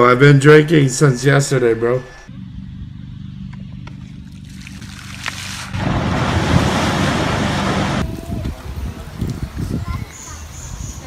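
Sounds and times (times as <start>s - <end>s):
low rumble: 2.2s - 9.5s
water splashing: 4.2s - 9.2s.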